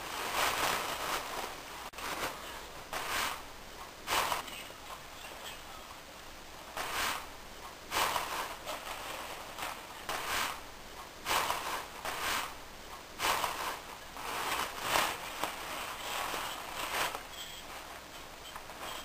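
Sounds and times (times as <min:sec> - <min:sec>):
toilet paper rustling and crinkling: 0:00.0 - 0:04.6, 0:07.9 - 0:12.6, 0:13.2 - 0:19.0.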